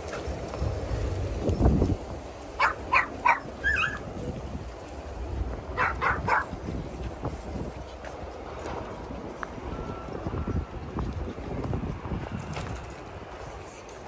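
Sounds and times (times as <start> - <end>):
dog barking: 2.6 - 4.0, 5.8 - 6.5.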